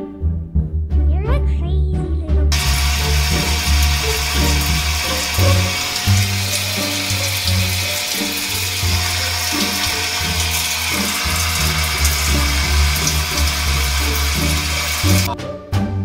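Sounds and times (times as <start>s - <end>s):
shower water spraying: 2.5s - 15.3s.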